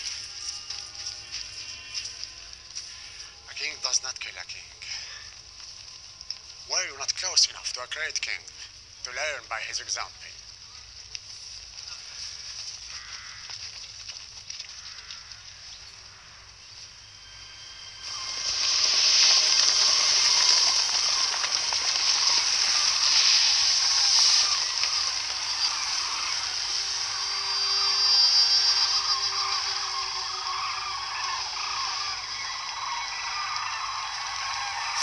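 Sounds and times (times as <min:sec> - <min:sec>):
wings flapping: 0:11.8 - 0:35.0
flock of birds calling: 0:11.9 - 0:13.8, 0:14.6 - 0:35.0
rushing wind and dust: 0:16.4 - 0:31.6.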